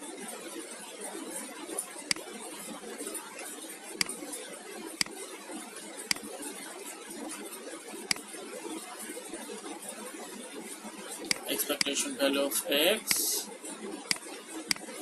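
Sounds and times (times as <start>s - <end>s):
sharp clicks: 11.3s - 12.0s, 14.1s - 14.8s
steady hiss: 11.3s - 13.5s.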